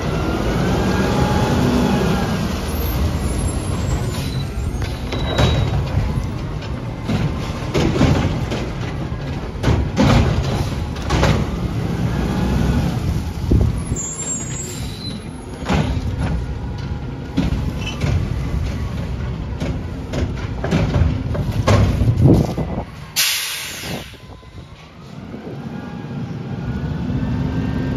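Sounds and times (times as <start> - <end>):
metal clanks and bangs: 4.8 - 11.6, 15.6 - 22.5.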